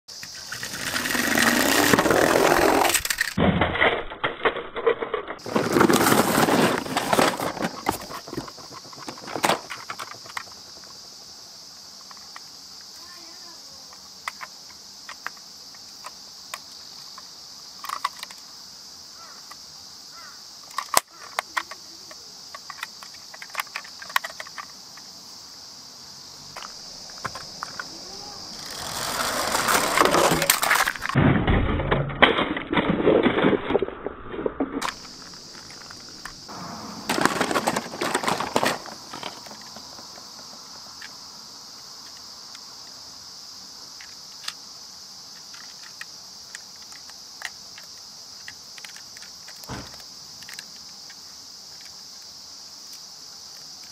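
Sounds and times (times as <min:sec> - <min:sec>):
toy vehicles clattering on gravel: 0:00.1 - 0:11.2, 0:12.0 - 0:18.5, 0:20.2 - 0:25.1, 0:26.4 - 0:41.2, 0:45.3 - 0:53.9
insects chirring: 0:00.1 - 0:53.9
plastic toy clicks and knocks: 0:45.5 - 0:51.2.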